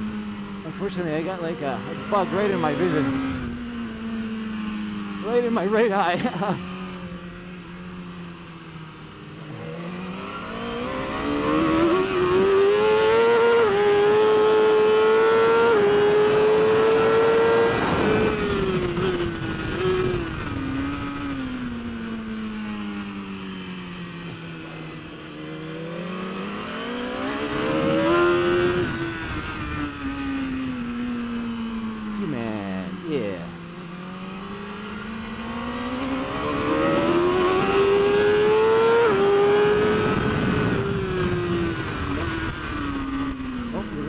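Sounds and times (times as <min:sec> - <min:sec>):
motorcycle engine screaming: 0:43.3 - 0:44.0.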